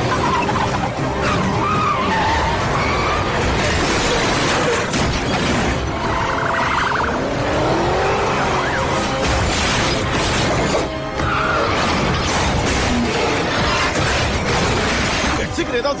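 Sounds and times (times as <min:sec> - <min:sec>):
car engines: 0:00.0 - 0:16.0
dramatic film music: 0:00.0 - 0:16.0.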